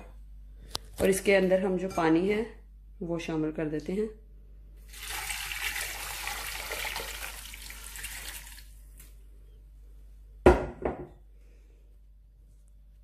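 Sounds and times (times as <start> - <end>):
water pouring into pot: 4.9 - 8.8
kitchenware clunks: 10.5 - 11.2.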